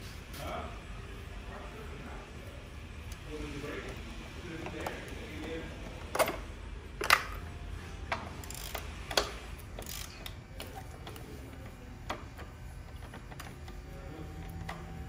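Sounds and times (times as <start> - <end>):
socket ratchet clicking: 8.1 - 10.8.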